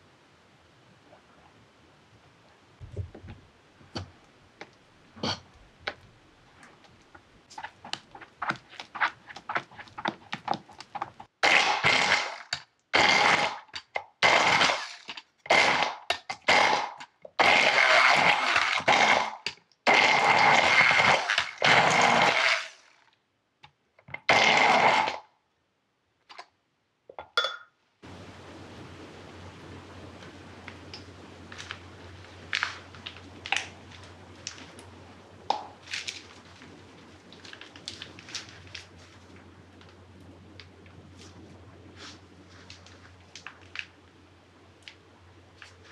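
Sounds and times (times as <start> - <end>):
faint low hum: 0.0 - 11.4, 25.3 - 45.9
stick blender whining: 17.4 - 19.3, 19.9 - 22.8, 24.3 - 25.2.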